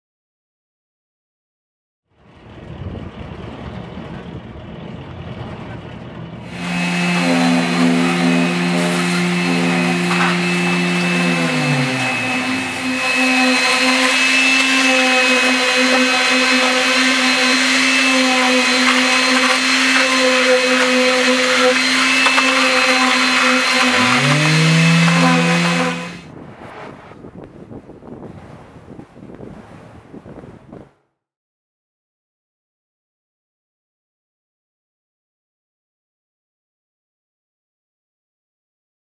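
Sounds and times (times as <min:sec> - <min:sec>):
motor churning wet concrete: 0:02.2 - 0:26.7.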